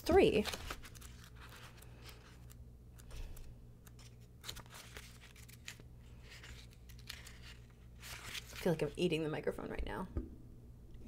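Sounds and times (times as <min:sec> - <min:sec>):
book pages rustling: 0:00.1 - 0:08.9
pages flicking: 0:00.3 - 0:08.7.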